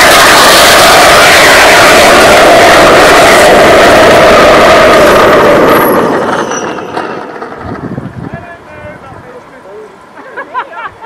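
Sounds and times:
rocket motor roaring: 0.0 - 8.4.

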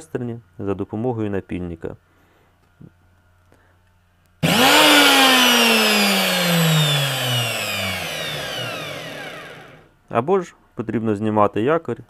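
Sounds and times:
angle grinder motor whining: 4.4 - 9.9.

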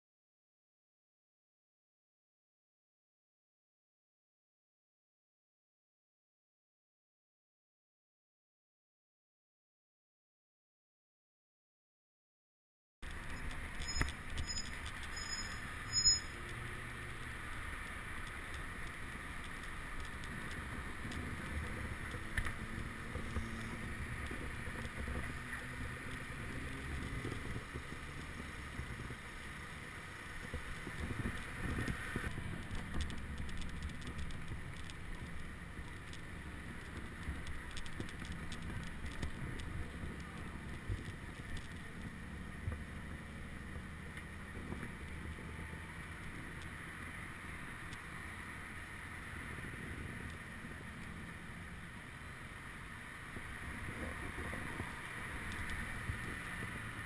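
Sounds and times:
bike on road: 13.0 - 57.0
traffic rumble: 13.0 - 57.0.

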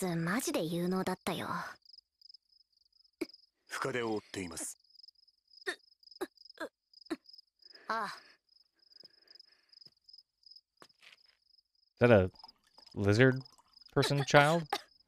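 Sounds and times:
crickets chirping: 0.3 - 15.0
person speaking: 14.0 - 14.8.

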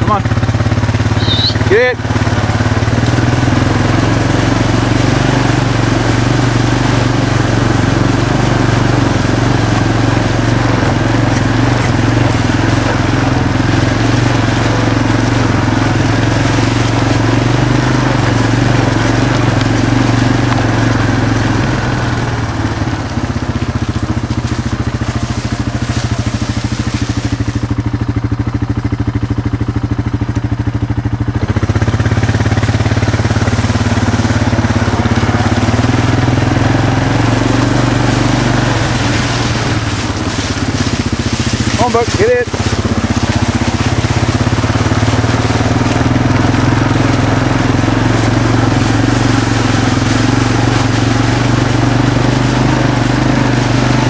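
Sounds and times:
off-road vehicle engine running: 0.0 - 54.0.

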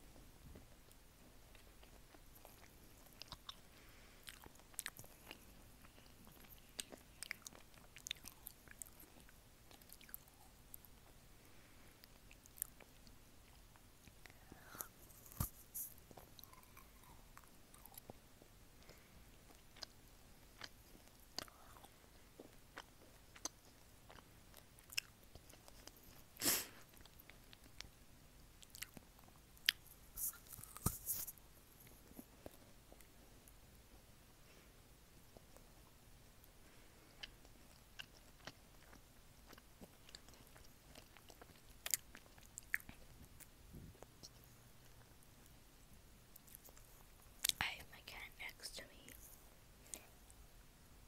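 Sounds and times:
close chewing with mouth clicks: 0.8 - 11.2, 11.9 - 33.6, 35.2 - 48.3
faint hiss: 8.3 - 22.4, 25.9 - 27.0, 43.4 - 51.0.

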